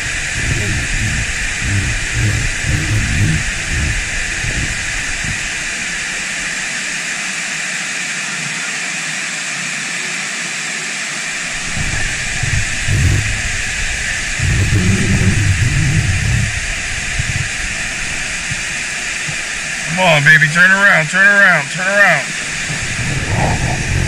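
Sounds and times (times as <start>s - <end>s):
low rumbling: 0.0s - 6.9s, 11.4s - 20.6s, 22.2s - 24.0s.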